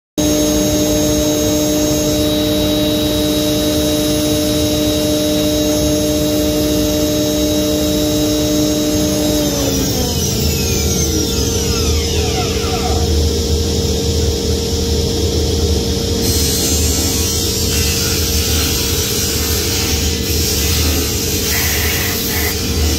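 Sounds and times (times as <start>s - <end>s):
router spindle whine: 0.2s - 22.9s
steady hum: 0.2s - 22.9s.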